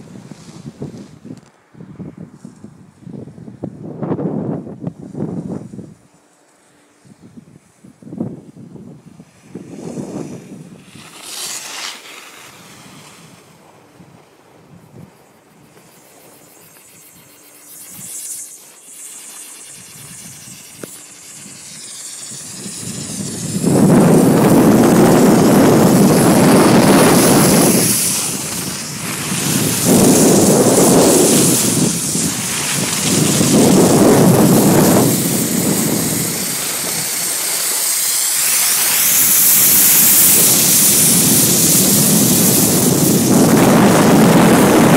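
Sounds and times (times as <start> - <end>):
skis sliding over packed snow: 0.0 - 1.5, 9.1 - 44.9
wind buffeting microphone: 0.0 - 6.1, 19.6 - 44.9.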